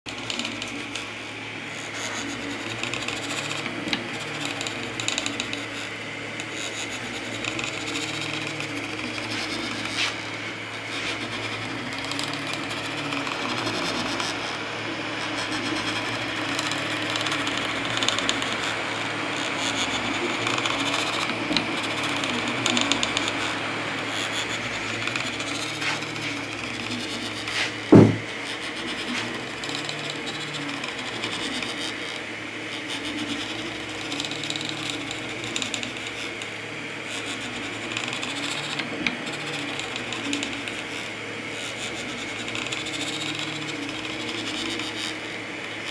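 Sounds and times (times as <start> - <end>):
fan whirring: 0.0 - 45.9
stepper motors whining: 0.1 - 45.9.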